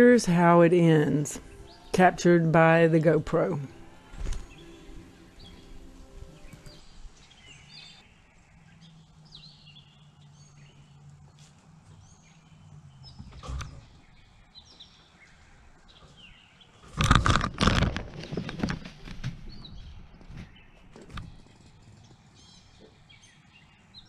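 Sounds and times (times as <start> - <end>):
small songbirds chirping: 0.0 - 24.0
close thumps and rustling: 15.9 - 23.0.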